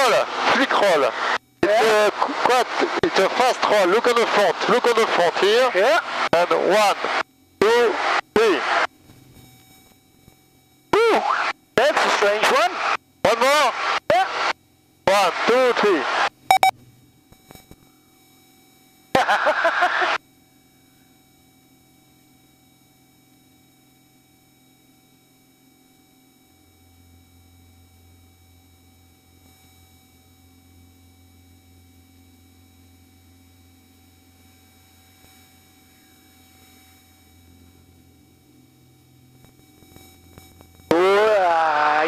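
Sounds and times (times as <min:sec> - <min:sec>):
electronic hum with high tones: 0:00.0 - 0:42.0
man shouting: 0:40.9 - 0:42.0.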